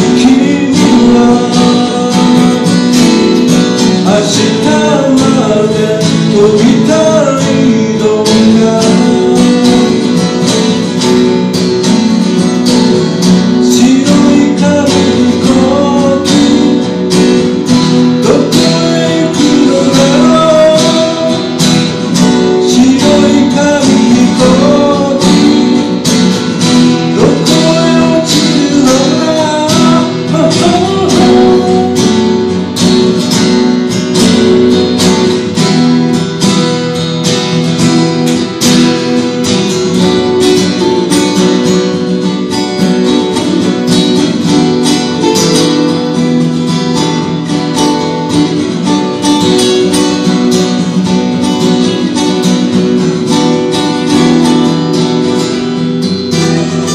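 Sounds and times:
person singing: 0:00.0 - 0:10.3, 0:13.6 - 0:32.7
acoustic guitars strummed and picked: 0:00.0 - 0:56.9.

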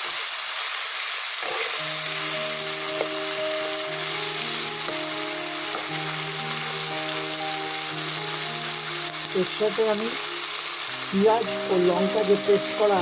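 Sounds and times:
vegetables sizzling in hot oil: 0:00.0 - 0:13.0
spatula stirring in a wok: 0:01.3 - 0:05.9
soft background music: 0:01.8 - 0:13.0.

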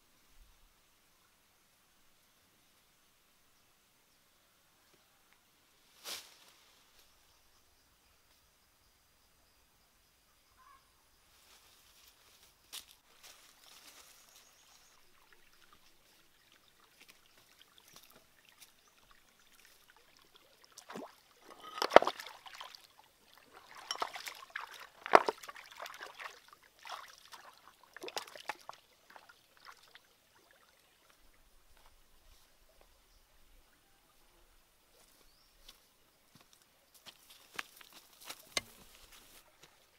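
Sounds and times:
water splashing in stream: 0:14.9 - 0:31.8.

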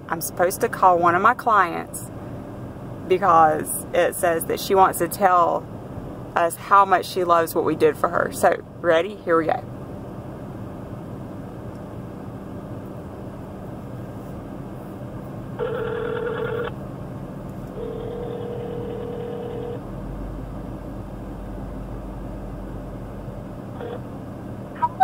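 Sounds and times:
steady low hum: 0:00.0 - 0:25.0
phone ringback tone: 0:15.6 - 0:16.7, 0:17.8 - 0:19.8.

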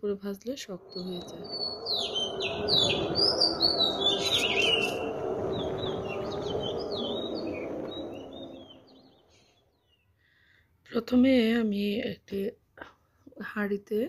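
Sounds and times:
small birds chirping: 0:00.6 - 0:10.2.

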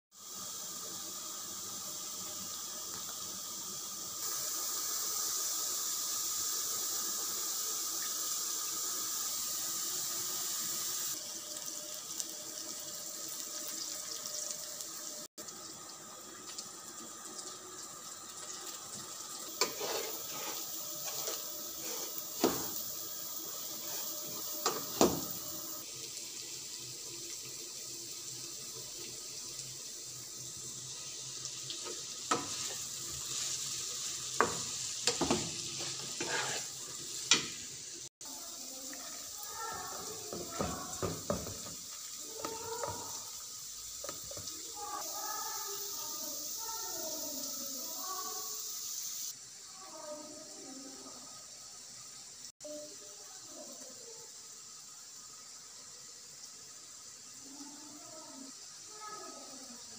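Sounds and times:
food sizzling in oil: 0:00.1 - 0:59.9
wooden spatula knocking pan: 0:40.1 - 0:41.8.

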